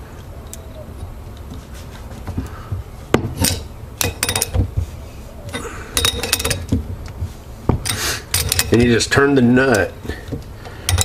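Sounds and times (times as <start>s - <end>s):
metal tools clinking: 3.4s - 4.6s, 5.5s - 6.8s, 7.8s - 11.0s.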